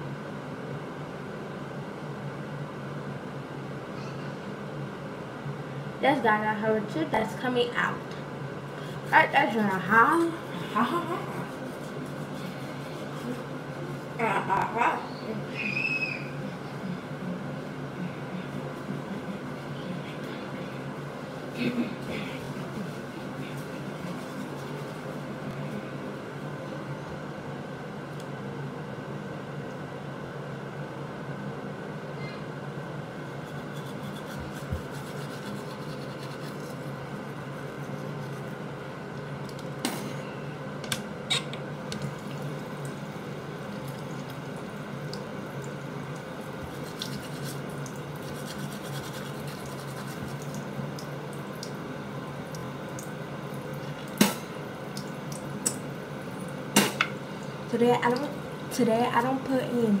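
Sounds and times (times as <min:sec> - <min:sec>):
toothbrush brushing teeth: 0:08.9 - 0:14.1, 0:22.0 - 0:25.3, 0:33.2 - 0:38.7, 0:43.8 - 0:51.7.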